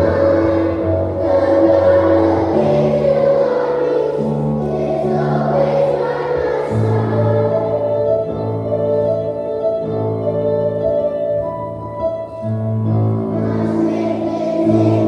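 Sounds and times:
choir singing a hymn: 0.0s - 8.4s, 12.9s - 15.0s
held keyboard chords: 0.0s - 15.0s.

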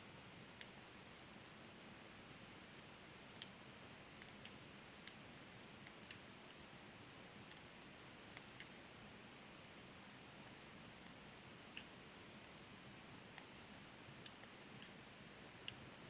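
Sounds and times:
low steady hiss: 0.0s - 16.0s
knitting needles clicking: 0.6s - 1.3s, 2.7s - 3.6s, 5.8s - 6.6s, 7.4s - 7.7s.

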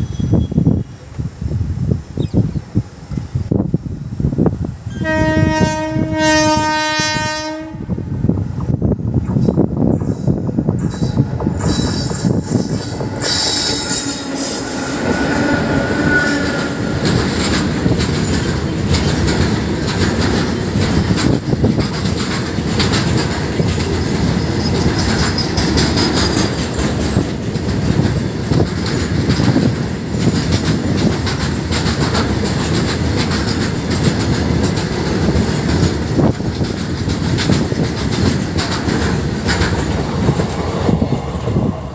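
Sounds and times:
freight train rumbling past: 0.0s - 41.9s
wheels squealing: 10.0s - 19.6s
wheels clattering over rail joints: 16.1s - 40.8s.

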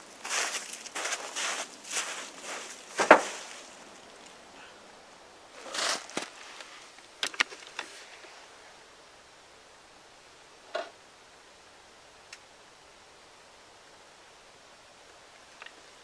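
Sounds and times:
footsteps crunching leaves and snow: 0.0s - 4.4s, 5.5s - 6.9s
short rustle: 0.0s - 4.4s, 5.6s - 8.5s.

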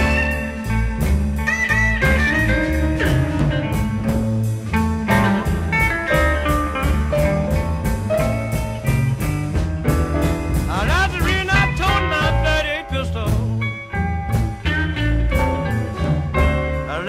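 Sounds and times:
drum kit beat: 0.0s - 17.0s
electric bass: 0.0s - 17.0s
electric guitar: 0.0s - 17.0s.

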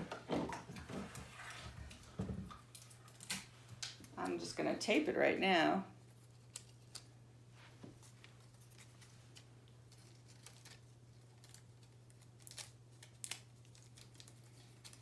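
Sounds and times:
rustling of tape and paper: 6.0s - 15.0s
paper crinkles: 7.9s - 15.0s.

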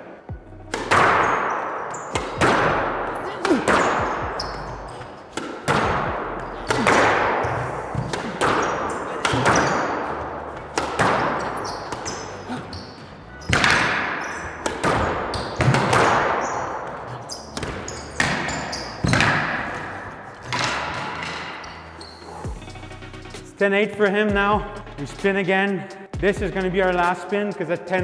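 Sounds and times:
squash ball hitting racquets and walls: 0.0s - 22.6s
sneakers squeaking on hardwood: 0.3s - 22.7s.

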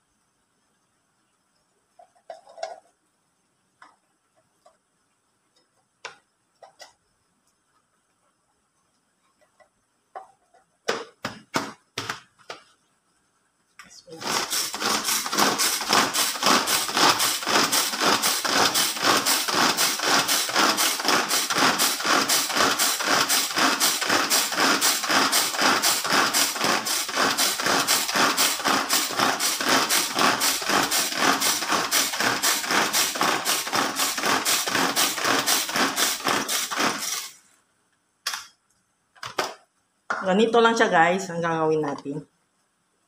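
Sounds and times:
hand food chopper whirring: 14.2s - 37.4s.

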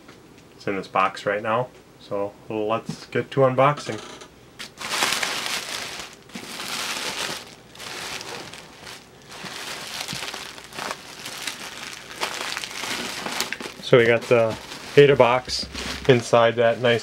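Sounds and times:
bubble wrap crinkling: 4.6s - 17.0s.

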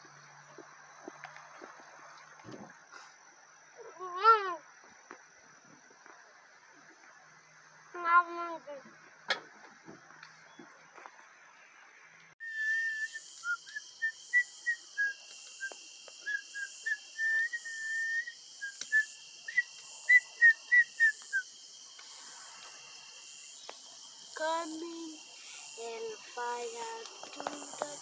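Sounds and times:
steady high hiss: 0.0s - 28.0s
boy whistling a tune: 12.4s - 21.5s.

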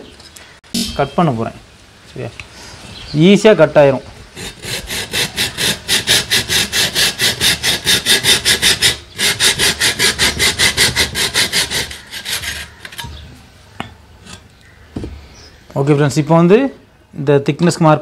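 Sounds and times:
hand saw cutting concrete block: 4.4s - 13.1s.

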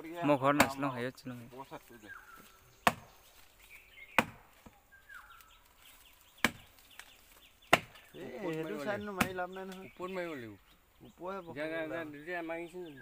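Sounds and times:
machete chopping into wood: 0.6s - 0.8s, 2.8s - 3.2s, 4.1s - 4.8s, 6.4s - 8.0s, 9.2s - 9.4s.

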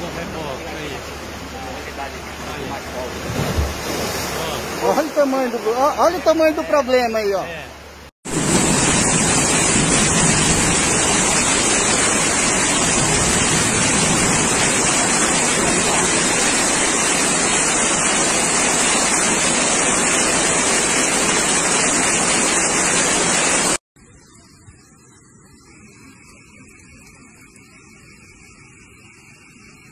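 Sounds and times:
floodwater rushing: 0.0s - 23.8s.

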